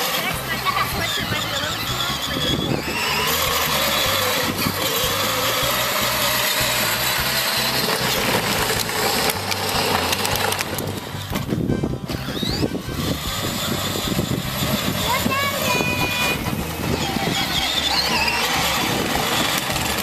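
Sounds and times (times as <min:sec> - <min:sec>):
plastic wheels rumbling: 0:00.0 - 0:20.0
toy electric motor whirring: 0:00.0 - 0:20.0.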